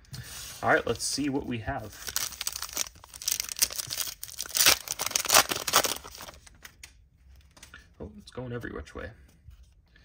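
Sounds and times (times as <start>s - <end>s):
foil wrapper tearing and crinkling: 2.0s - 6.5s.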